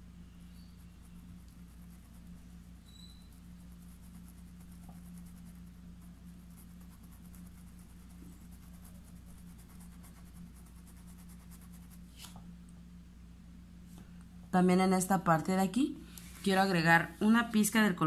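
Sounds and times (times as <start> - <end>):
steady low hum: 0.0 - 18.0
paintbrush strokes on cloth: 0.4 - 12.3, 16.2 - 17.4.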